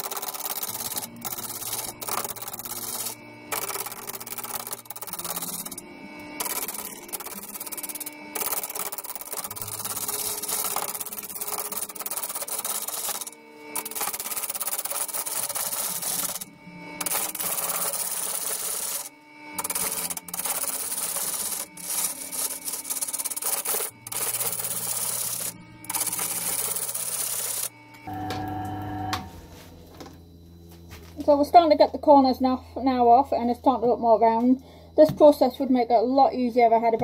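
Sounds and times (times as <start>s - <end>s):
lathe gouge scraping wood: 0.0s - 27.7s.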